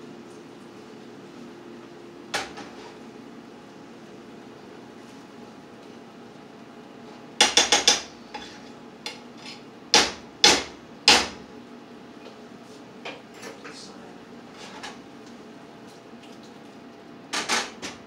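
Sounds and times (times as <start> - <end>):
utensil knocking on frying pan: 7.4 - 8.1, 9.9 - 11.4.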